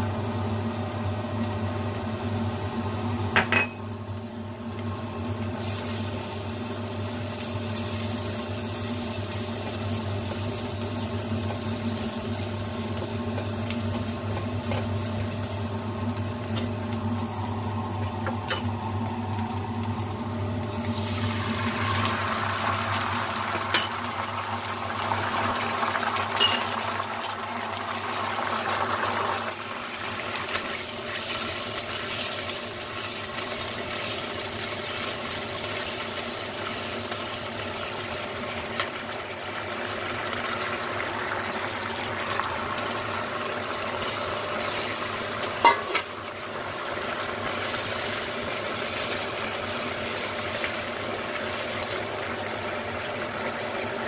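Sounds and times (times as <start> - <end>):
garlic sizzling in oil: 0.0 - 54.0
sauce bubbling: 16.9 - 31.1
utensil clinking against wok: 26.4 - 26.7.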